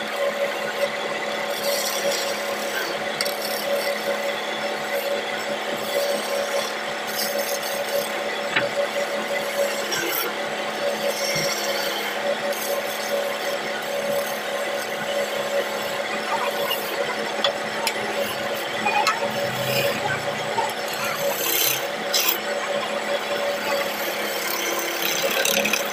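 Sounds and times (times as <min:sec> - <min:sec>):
lathe humming: 0:00.0 - 0:25.9
chisel scraping on wood: 0:01.6 - 0:04.2, 0:05.8 - 0:08.7, 0:20.6 - 0:22.4, 0:23.7 - 0:25.9.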